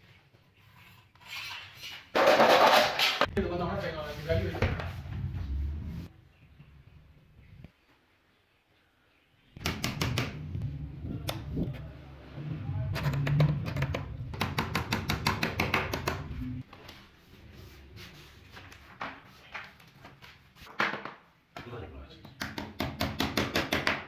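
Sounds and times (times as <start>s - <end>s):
hammer tapping: 13.1s - 16.3s.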